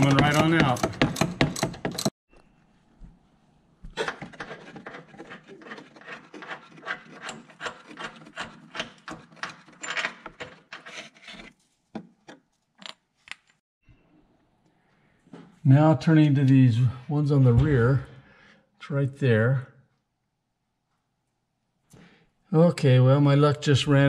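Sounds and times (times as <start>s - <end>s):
metallic scraping of bolt: 5.6s - 11.6s.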